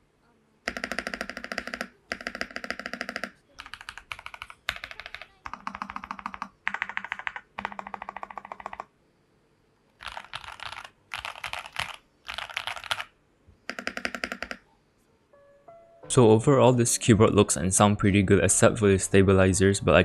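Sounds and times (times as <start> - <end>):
mechanical keyboard typing: 0.7 - 8.9, 10.0 - 14.6.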